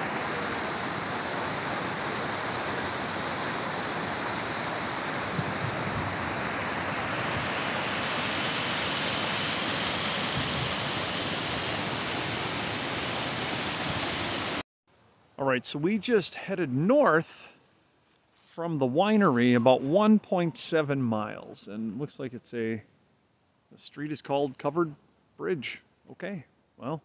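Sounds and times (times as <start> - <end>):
creek water rushing over rocks: 0.0 - 14.6.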